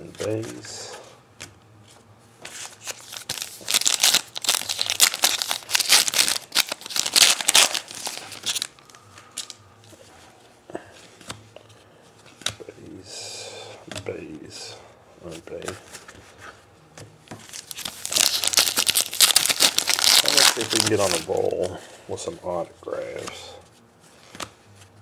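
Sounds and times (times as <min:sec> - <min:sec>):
foil wrapper tearing and crinkling: 0:02.8 - 0:08.7, 0:17.5 - 0:21.6.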